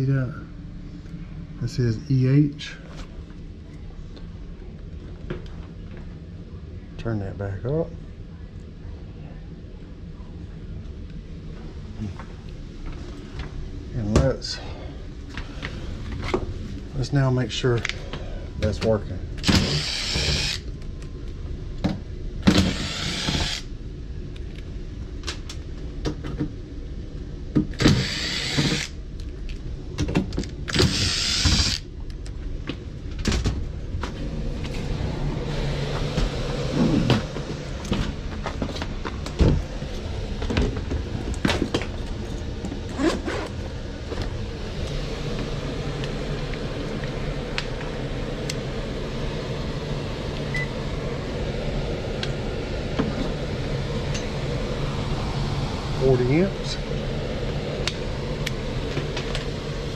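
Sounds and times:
steady motor hum: 0.0s - 59.9s
impact driver running: 19.4s - 20.6s, 22.5s - 23.7s, 27.8s - 28.9s, 30.7s - 31.8s.

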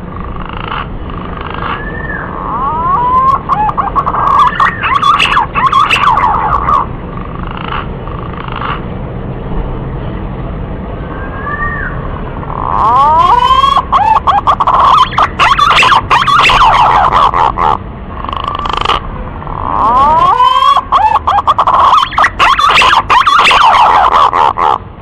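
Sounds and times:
pigeon warbling whistles: 1.5s - 6.9s, 11.3s - 17.8s, 18.4s - 24.8s.

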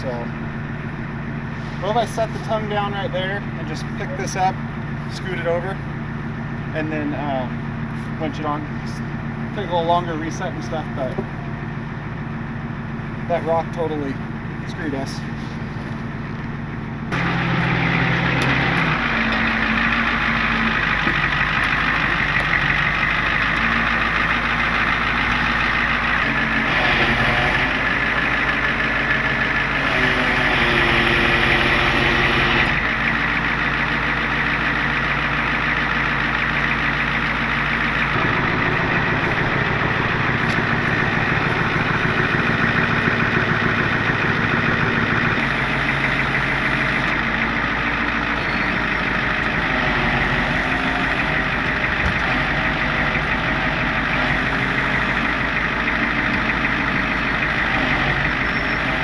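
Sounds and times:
truck engine idling: 0.0s - 59.0s.

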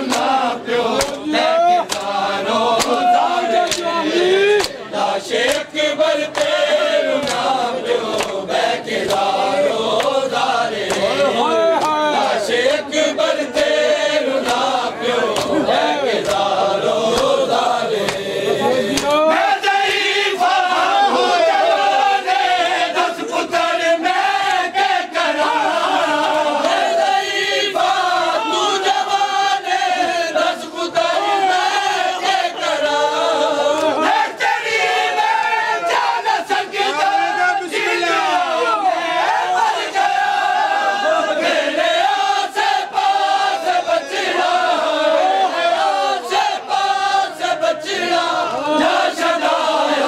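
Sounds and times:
hands slapping bare chests: 0.0s - 4.8s, 5.4s - 12.8s, 14.4s - 18.3s, 18.9s - 19.2s, 33.7s - 34.1s
men chanting in unison: 0.0s - 50.0s
hand slaps on chest: 0.1s - 0.3s, 1.0s - 1.2s, 1.8s - 2.2s, 2.8s - 3.0s, 7.2s - 7.5s, 14.4s - 14.7s, 16.2s - 16.5s, 18.0s - 18.3s, 19.0s - 19.2s.

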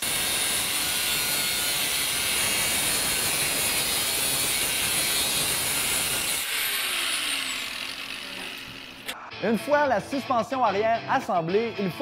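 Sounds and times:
angle grinder cutting steel: 0.0s - 9.2s.

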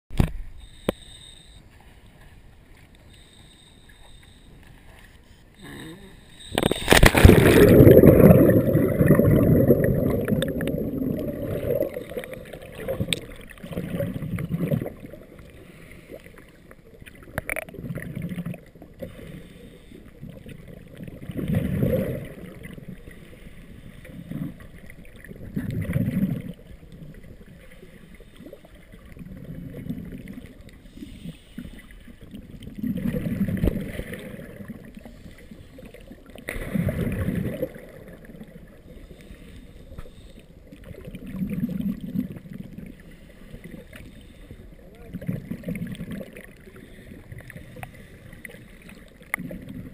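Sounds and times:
muffled underwater sound: 0.1s - 49.9s
diver's breathing bubbles: 5.6s - 16.6s, 27.8s - 44.6s
splash into water: 6.6s - 10.4s.

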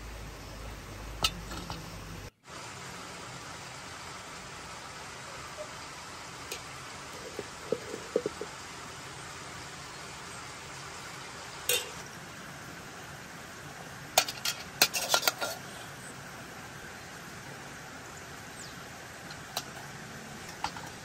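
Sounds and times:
steady background hiss: 0.0s - 21.0s
metal spoon clinking on pot: 11.7s - 12.0s.

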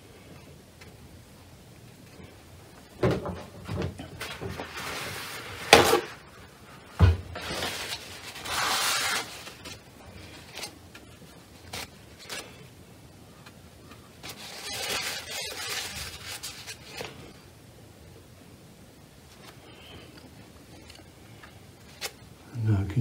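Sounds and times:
brush scrubbing rustle: 7.4s - 10.8s.

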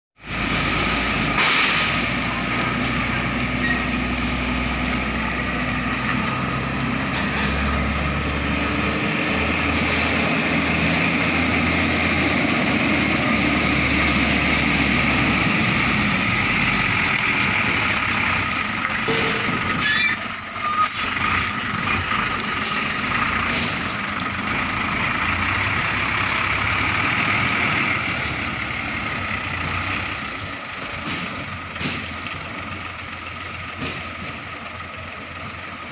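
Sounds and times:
diesel truck engine running: 0.2s - 35.9s
high squeal: 3.6s - 4.0s, 19.8s - 21.4s.

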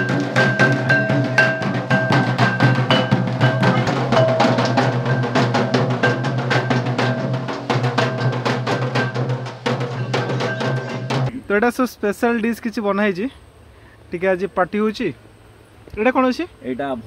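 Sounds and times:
held melodic tones: 0.0s - 11.3s
quick drumbeats: 0.0s - 11.3s.

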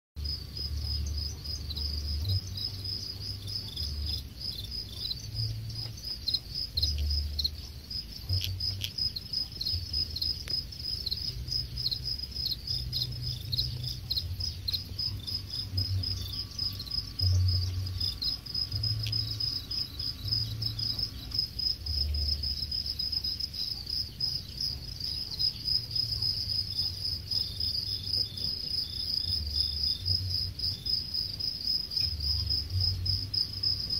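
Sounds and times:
crickets chirping: 0.2s - 33.9s.

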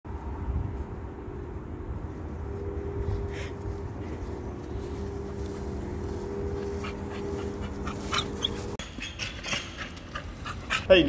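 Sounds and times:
steady low hum: 0.1s - 8.8s
dog panting: 6.7s - 10.9s
dog whimpering: 7.8s - 10.0s.

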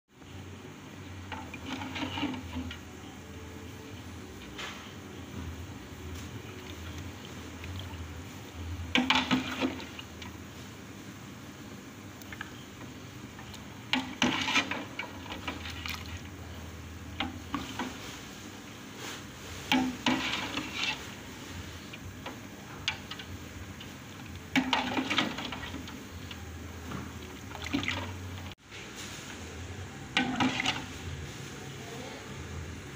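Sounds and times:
ladle sloshing soup: 1.2s - 3.0s, 5.2s - 10.8s, 12.1s - 28.6s, 30.1s - 31.1s
ladle clinking metal pot: 8.9s - 10.0s, 24.3s - 26.4s, 30.2s - 30.9s.

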